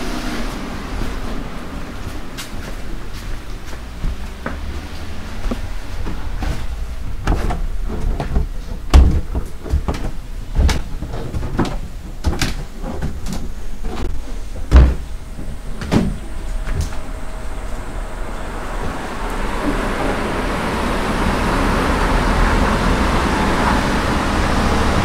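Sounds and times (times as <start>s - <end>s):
constant deep rumble: 0.0s - 25.0s
irregular thumps and knocks: 5.5s - 15.1s.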